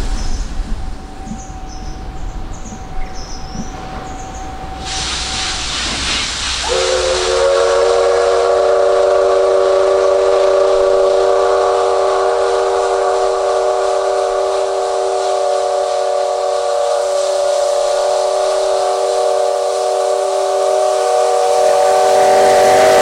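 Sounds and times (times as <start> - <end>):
steam hissing: 3.6 - 23.0
steam locomotive whistle: 4.6 - 23.0.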